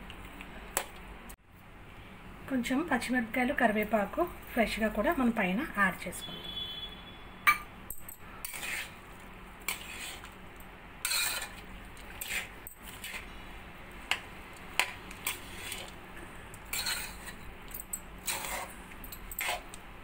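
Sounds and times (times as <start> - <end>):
metal spatula scraping a pan: 8.3 - 9.0, 9.6 - 10.3, 11.0 - 13.4, 14.8 - 16.0, 16.7 - 17.4, 18.2 - 19.8.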